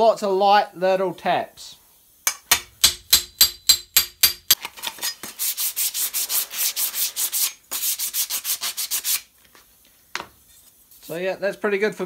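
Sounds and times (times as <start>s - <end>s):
hammer tapping steel: 2.3s - 4.6s.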